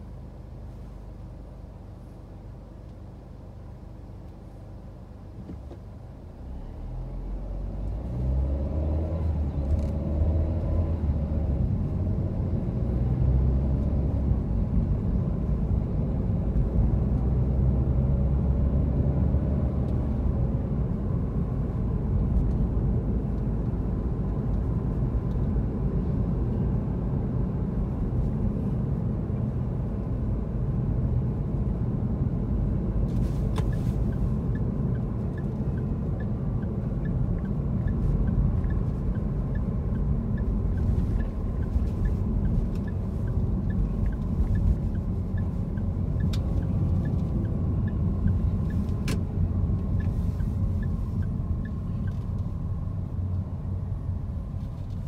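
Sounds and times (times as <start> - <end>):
car engine and tyres rumbling: 0.0 - 55.0
engine accelerating: 6.4 - 15.8, 32.5 - 55.0.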